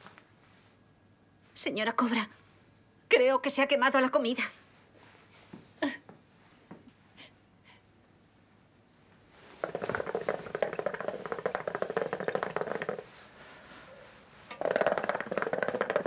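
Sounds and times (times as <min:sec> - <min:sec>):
fast drum roll: 0:09.6 - 0:13.2, 0:14.5 - 0:16.0.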